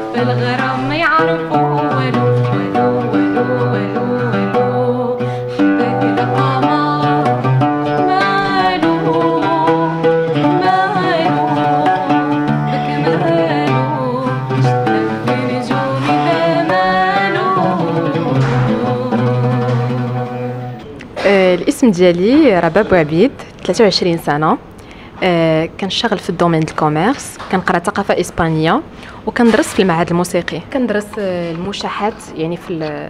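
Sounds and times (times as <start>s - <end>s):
woman singing: 0.0s - 23.3s
plucked oud notes: 0.0s - 24.4s.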